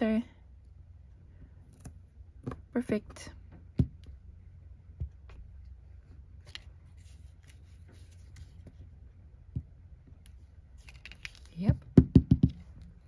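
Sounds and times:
objects knocking on a desk: 11.9 - 12.6.

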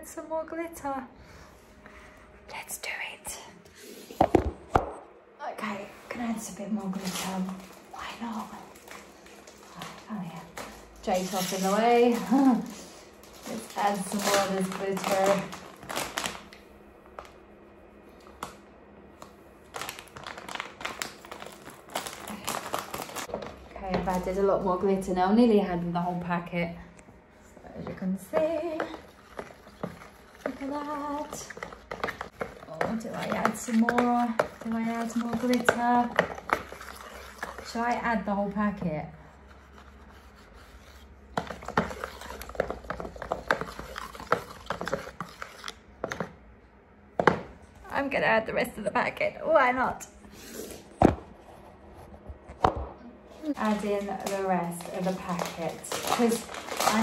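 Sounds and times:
plastic sachet crinkling: 6.9 - 16.6, 19.6 - 24.4, 28.6 - 37.8, 53.5 - 57.0
stick scraping in paint bucket: 28.4 - 38.2, 39.4 - 46.3.

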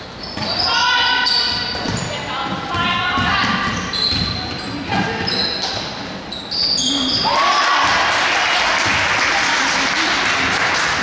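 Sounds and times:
shoes squeaking on hardwood floor: 0.1 - 7.3
crowd cheering and clapping: 7.2 - 11.0.

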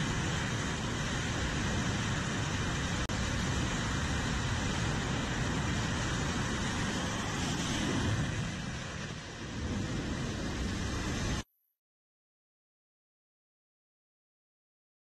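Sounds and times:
jet engine roaring: 0.0 - 11.4.

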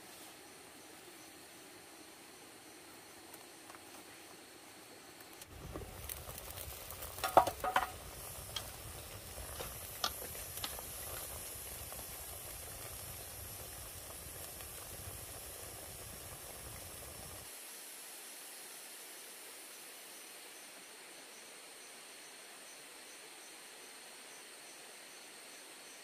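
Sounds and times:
pot boiling with a hiss: 0.0 - 26.0
chopsticks knocking on a pot: 7.2 - 7.9.

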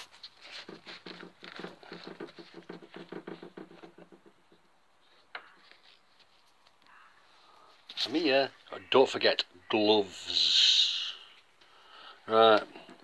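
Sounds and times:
rustling on phone microphone: 0.0 - 4.2, 5.0 - 6.9.

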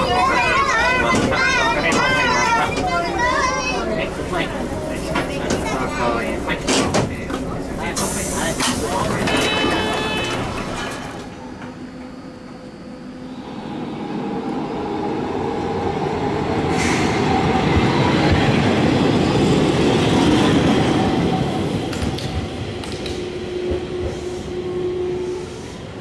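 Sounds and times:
tram wheels on rails: 0.0 - 26.0.

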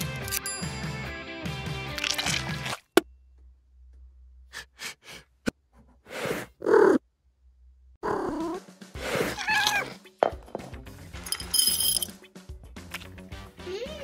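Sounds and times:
cat meowing: 9.2 - 10.0.

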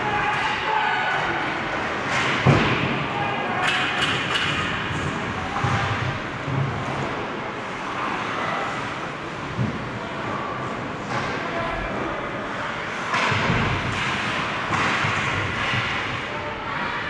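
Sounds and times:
faint shouting voices: 0.0 - 6.2, 16.0 - 17.0.

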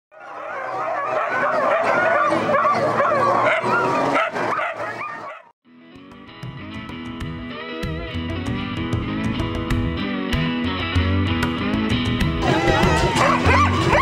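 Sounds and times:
dogs barking and yelping: 0.1 - 5.6, 12.4 - 14.0
guitar music: 5.7 - 14.0.

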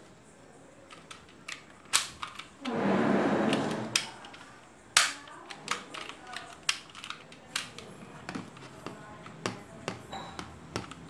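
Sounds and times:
toy gun plastic clicks: 0.9 - 2.5, 4.0 - 7.9.

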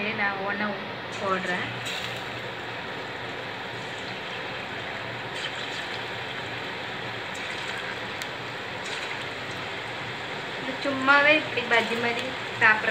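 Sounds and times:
food sizzling in hot oil: 1.1 - 12.9.

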